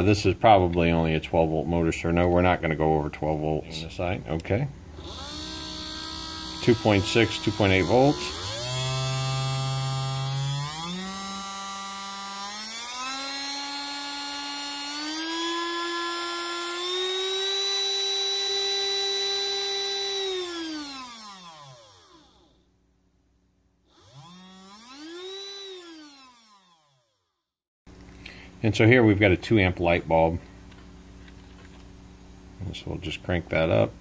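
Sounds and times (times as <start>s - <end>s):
electric motor whining: 4.9s - 22.6s, 23.9s - 27.1s.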